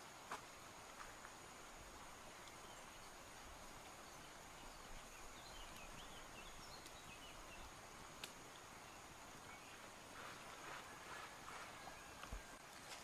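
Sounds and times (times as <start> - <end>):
faint bird chirps: 2.4 - 7.9, 8.5 - 13.0.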